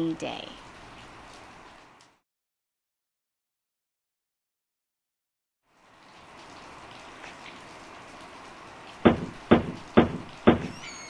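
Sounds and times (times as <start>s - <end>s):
steady rain hiss: 0.0s - 2.2s, 5.7s - 11.0s
sharp knocks on wooden door: 9.0s - 10.9s.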